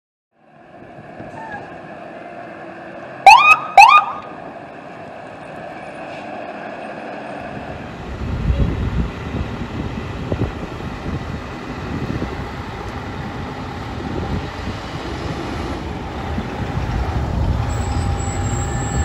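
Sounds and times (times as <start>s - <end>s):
fire truck engine rumble: 0.4s - 19.0s
siren whoops: 3.2s - 4.3s.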